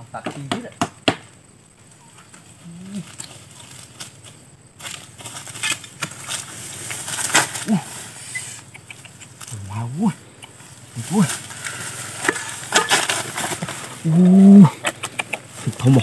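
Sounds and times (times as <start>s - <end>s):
footsteps through rustling dry grass: 10.6s - 14.1s.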